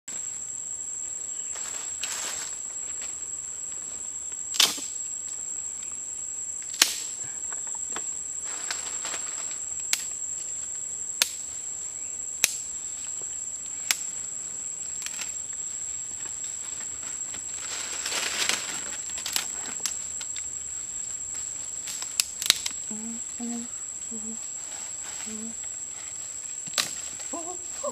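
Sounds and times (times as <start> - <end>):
high-pitched insect drone: 0.1 - 27.9
soft rustles: 14.9 - 21.9.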